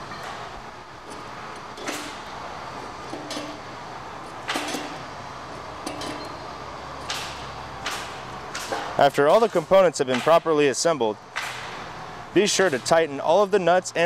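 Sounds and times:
workshop hum: 0:00.0 - 0:14.0.

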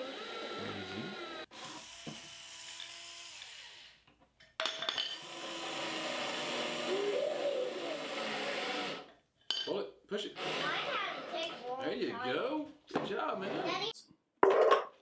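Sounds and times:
cordless drill motor whining: 0:00.0 - 0:04.0, 0:05.2 - 0:09.0.

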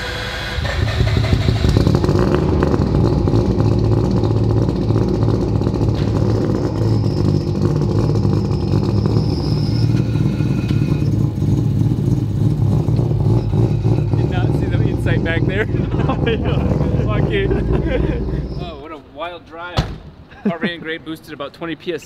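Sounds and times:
rotary engine running with crackle: 0:00.2 - 0:16.0.

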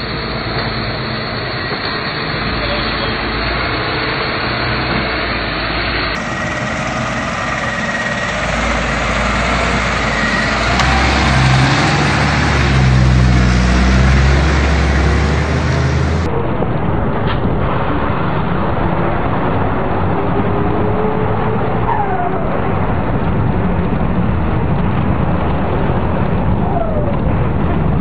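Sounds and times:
bus diesel engine droning: 0:00.0 - 0:16.3.

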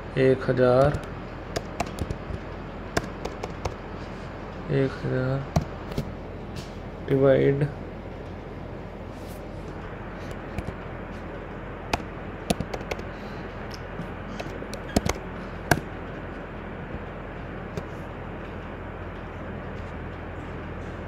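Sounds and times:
low mains hum: 0:00.0 - 0:21.0
keyboard and mouse clicks: 0:00.8 - 0:02.4, 0:03.0 - 0:03.8, 0:11.9 - 0:13.1, 0:14.4 - 0:15.8.

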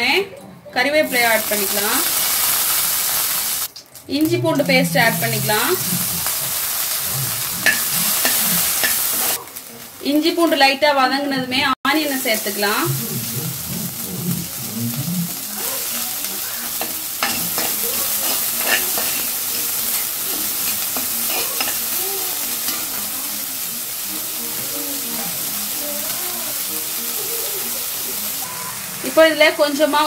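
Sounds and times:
onions sizzling in oil: 0:01.0 - 0:11.2, 0:11.9 - 0:30.0
ladle scraping pan: 0:04.5 - 0:09.4, 0:16.6 - 0:23.0.

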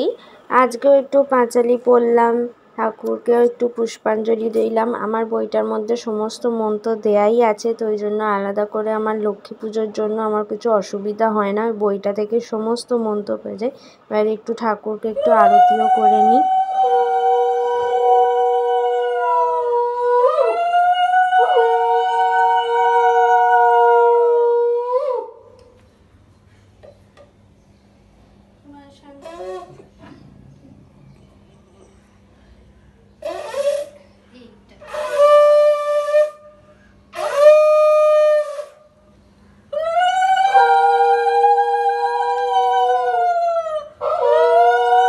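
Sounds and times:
conch shell blown: 0:21.2 - 0:24.3, 0:33.2 - 0:34.2, 0:34.8 - 0:39.2, 0:40.4 - 0:42.9
conch shell blasts: 0:33.2 - 0:34.0, 0:34.8 - 0:38.9.

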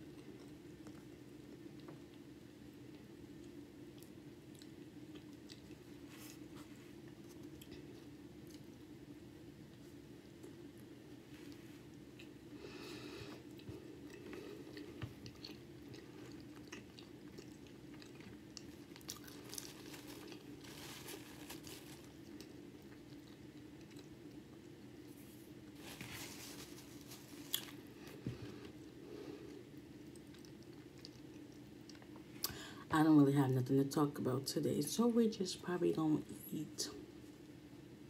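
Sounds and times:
steady low hum: 0:00.0 - 0:38.0
close chewing mouth noises: 0:02.9 - 0:08.7, 0:13.3 - 0:20.6, 0:22.2 - 0:24.6, 0:29.5 - 0:32.5.

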